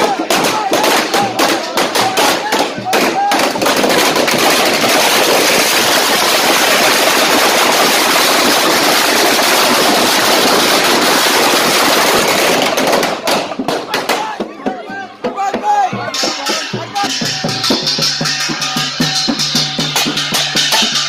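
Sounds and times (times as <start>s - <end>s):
firecrackers crackling: 0.0s - 14.5s, 16.2s - 21.0s.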